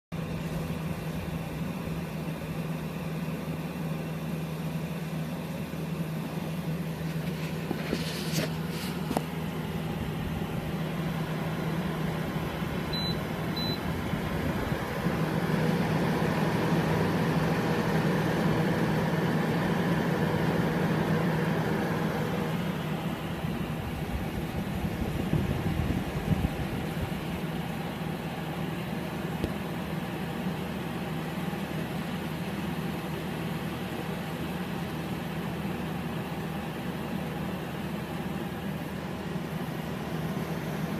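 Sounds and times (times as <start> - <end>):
air conditioner running: 0.1 - 40.9
short high beeps: 12.9 - 13.8.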